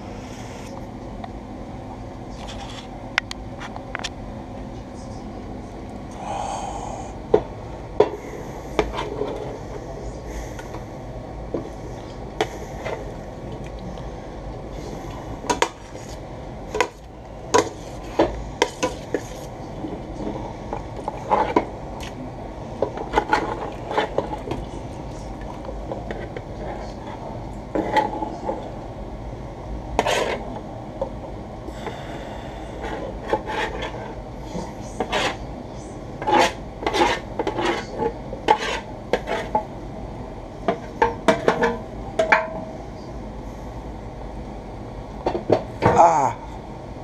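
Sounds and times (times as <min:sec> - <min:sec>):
metal spoon scraping and clanking on metal: 0:30.0 - 0:30.4, 0:36.2 - 0:39.6.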